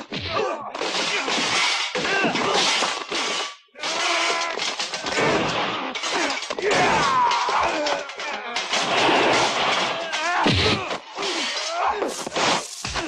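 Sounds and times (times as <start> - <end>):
people yelling and grunting: 0.0 - 3.1, 3.7 - 13.0
fight hits and smashing impacts: 0.0 - 13.0.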